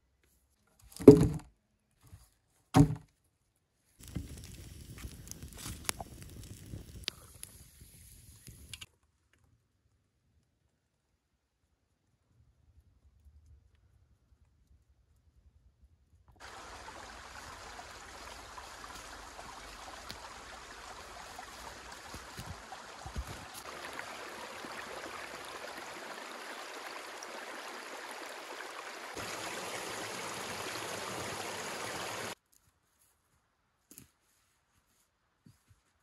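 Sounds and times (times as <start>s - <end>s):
stream rushing over stones: 16.4s - 32.4s.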